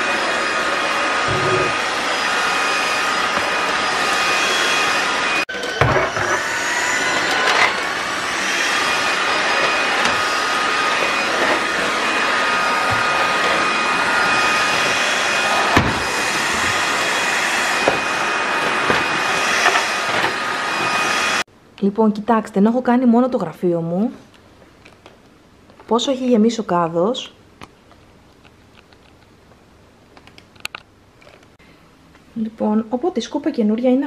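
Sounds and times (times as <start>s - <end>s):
stick vacuum running: 0.0s - 21.4s.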